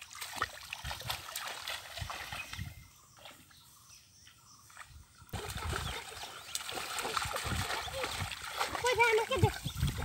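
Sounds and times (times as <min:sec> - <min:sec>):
hands splashing in muddy water: 0:05.4 - 0:10.0.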